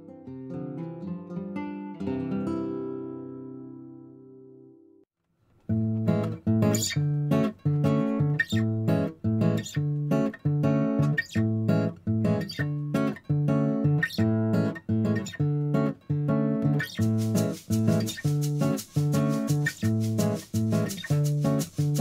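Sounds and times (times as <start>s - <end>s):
acoustic guitar strumming: 5.7s - 22.0s.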